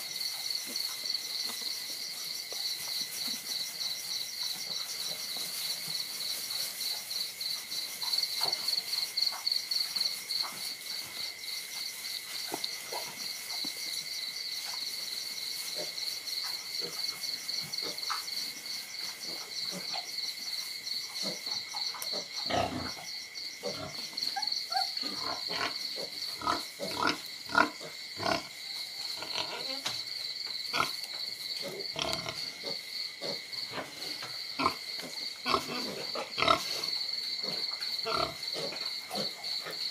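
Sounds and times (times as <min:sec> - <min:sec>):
crickets chirping: 0:00.0 - 0:39.9
puppies yipping and growling: 0:24.3 - 0:25.2.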